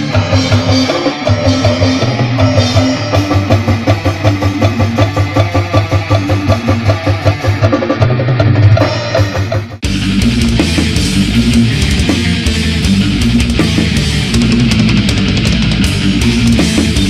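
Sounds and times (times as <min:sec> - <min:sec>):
fast metal drumming: 0:00.0 - 0:17.0
low bass: 0:08.4 - 0:17.0.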